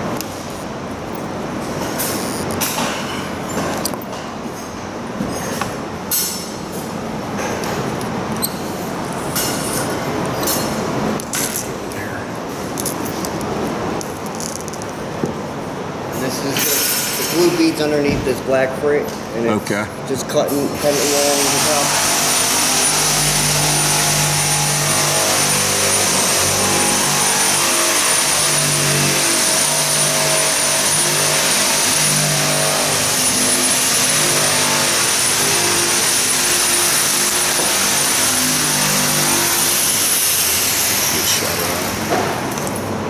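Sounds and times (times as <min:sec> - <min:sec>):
power tool motor whining: 0:20.8 - 0:42.1.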